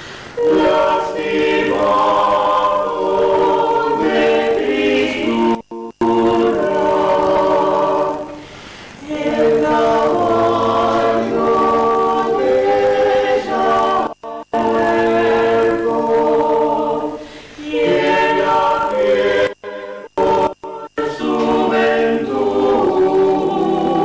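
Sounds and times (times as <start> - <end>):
vocal quartet singing a cappella: 0.0 - 24.0.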